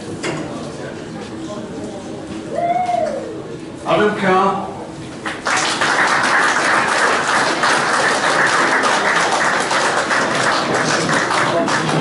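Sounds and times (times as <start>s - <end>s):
people applauding: 5.2s - 12.0s.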